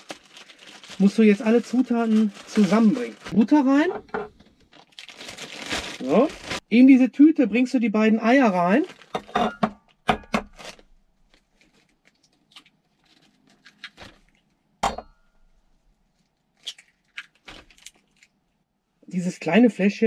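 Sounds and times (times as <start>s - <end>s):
plastic bag crinkling: 0.0s - 6.6s, 8.6s - 9.4s, 10.6s - 14.6s, 16.1s - 18.4s.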